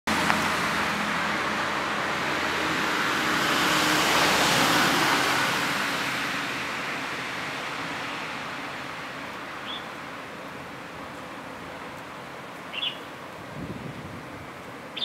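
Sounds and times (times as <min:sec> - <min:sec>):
vehicle passing: 0:00.1 - 0:09.3.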